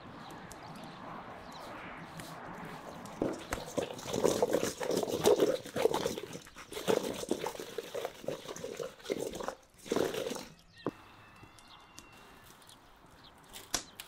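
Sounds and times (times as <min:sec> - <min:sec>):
wedges tumbling in metal bowl: 0:03.1 - 0:10.6.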